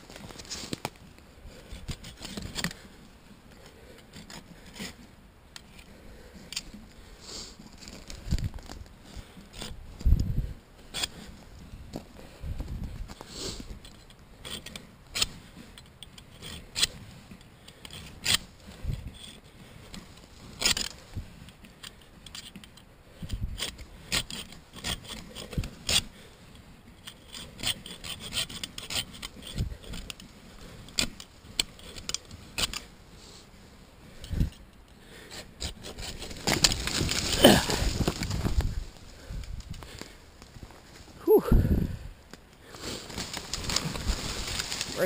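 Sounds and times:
hand saw rasping through antler: 0:27.1 - 0:32.9, 0:35.2 - 0:36.4.

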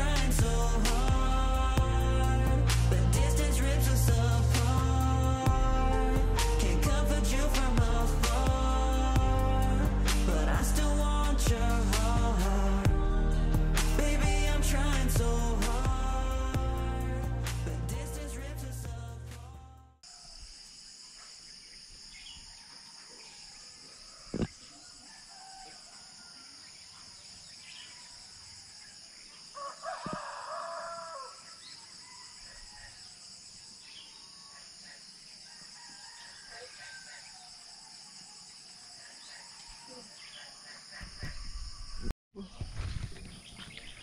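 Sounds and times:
insects droning: 0:20.0 - 0:44.0
rooster crowing: 0:22.6 - 0:26.7, 0:29.6 - 0:33.1, 0:35.4 - 0:38.4.

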